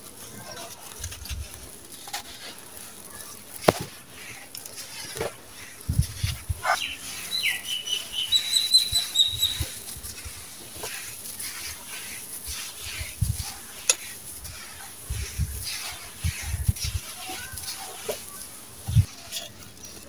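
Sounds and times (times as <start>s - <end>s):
hands crumbling damp cement mix: 0.0s - 20.0s
bird chirping: 6.6s - 9.8s.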